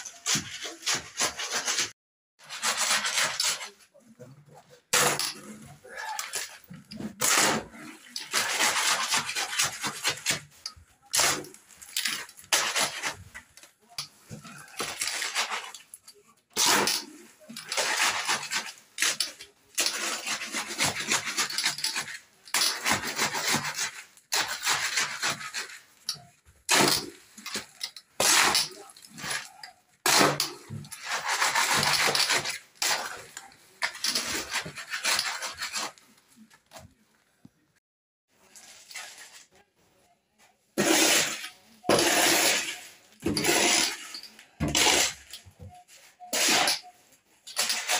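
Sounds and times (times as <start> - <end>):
shovel scraping wet concrete: 0.0 - 3.8, 4.9 - 13.4, 14.0 - 15.9, 16.6 - 36.0, 40.8 - 47.9.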